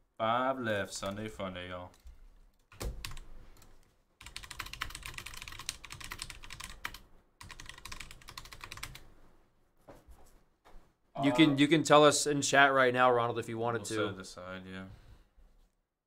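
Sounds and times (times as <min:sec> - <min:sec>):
computer keyboard typing: 0:01.9 - 0:09.1.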